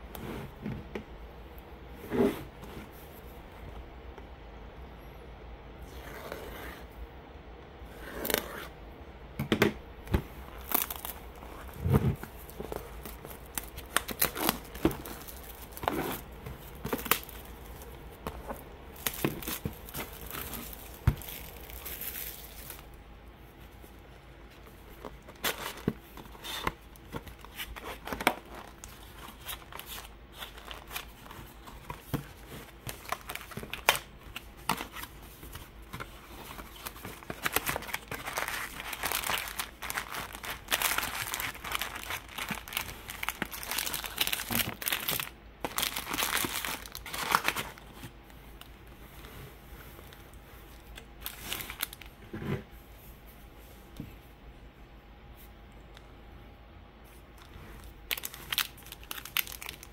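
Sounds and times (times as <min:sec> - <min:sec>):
plastic wrapping crinkling and tearing: 0:10.4 - 0:23.0, 0:24.5 - 0:48.7, 0:50.8 - 0:52.1, 0:57.8 - 0:59.9.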